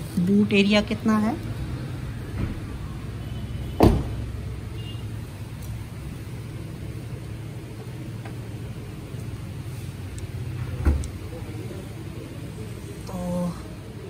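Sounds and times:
car door slamming shut: 3.8 - 4.2.

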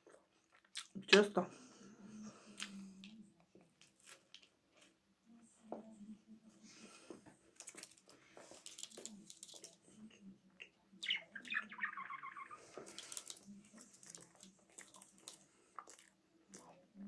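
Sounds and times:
budgerigar chattering call: 11.0 - 12.6.

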